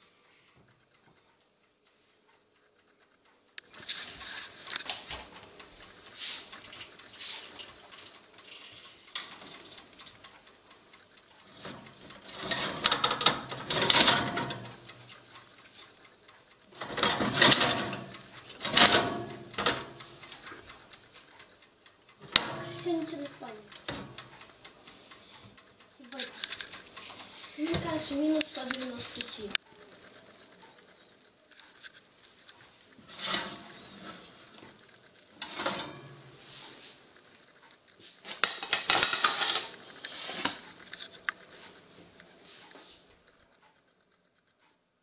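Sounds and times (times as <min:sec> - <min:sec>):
metal pan scraping on wire rack: 0:11.6 - 0:15.0, 0:16.8 - 0:20.1, 0:33.0 - 0:34.6, 0:35.4 - 0:37.0, 0:38.4 - 0:40.6
oven door opening: 0:11.7 - 0:14.8, 0:16.8 - 0:20.0, 0:33.1 - 0:34.4, 0:35.4 - 0:36.3.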